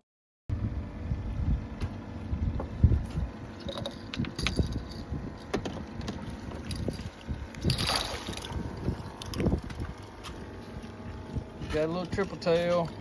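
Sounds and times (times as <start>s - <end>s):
wind buffeting microphone: 0.5s - 12.4s
fishing line clicks and jangles: 3.6s - 5.5s.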